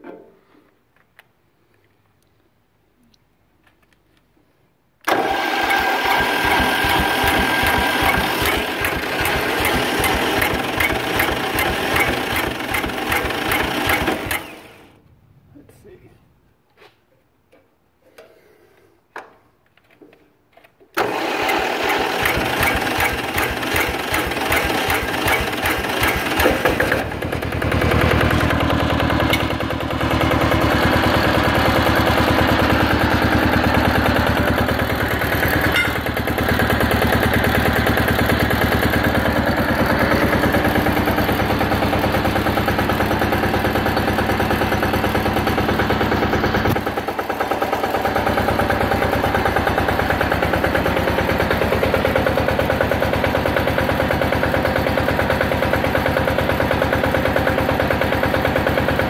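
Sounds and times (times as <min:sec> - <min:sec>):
diesel engine cranking: 0:05.0 - 0:15.0, 0:20.9 - 0:59.0
diesel engine running: 0:21.5 - 0:59.0.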